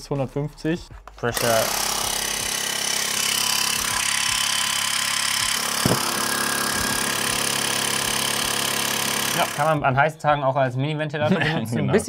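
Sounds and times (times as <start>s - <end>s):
air compressor droning: 1.4s - 9.8s
short knock: 5.8s - 6.0s.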